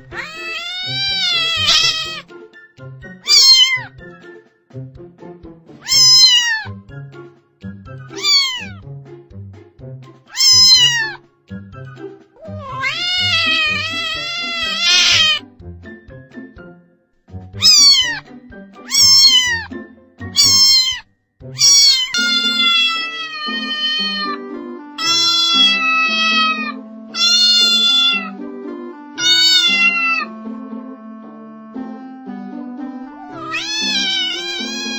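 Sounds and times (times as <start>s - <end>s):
kitten meowing: 0.0s - 2.3s, 3.2s - 3.9s, 5.8s - 6.7s, 8.1s - 8.8s, 10.3s - 11.2s, 12.4s - 15.4s, 17.6s - 18.2s, 18.9s - 19.8s, 20.4s - 21.0s, 21.6s - 24.4s, 25.0s - 28.4s, 29.2s - 30.3s, 33.3s - 34.9s
light music with steady beat: 0.0s - 34.9s.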